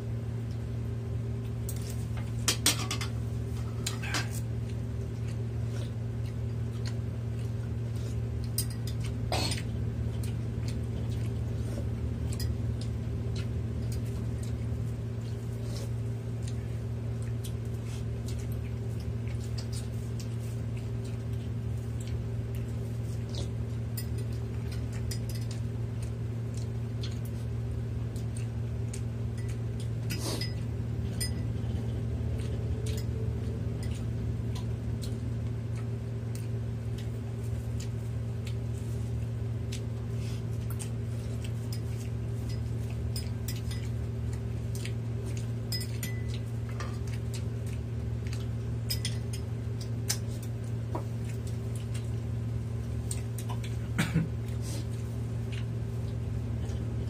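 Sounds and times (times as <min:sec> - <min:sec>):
steady low hum: 0:00.0 - 0:57.0
spoon and dishes clinking: 0:29.4 - 0:31.5, 0:45.7 - 0:46.4, 0:48.9 - 0:49.5.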